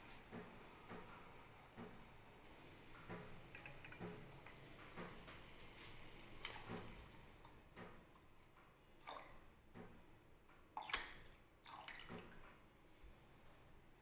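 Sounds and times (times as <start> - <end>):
tea boiling in a pot: 2.4 - 9.7
milk pouring splash: 10.8 - 12.4.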